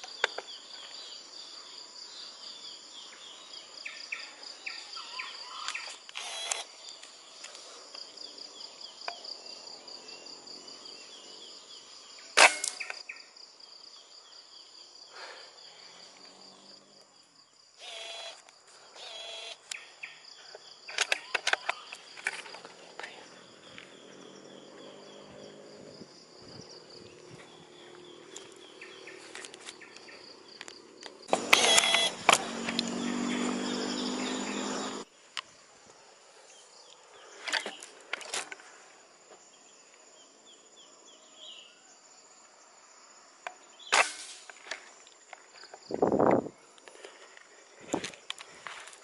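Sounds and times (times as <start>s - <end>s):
high-pitched insect drone: 3.8s - 7.0s, 17.8s - 19.8s, 23.2s - 35.1s
air rifle shot: 12.4s - 12.9s.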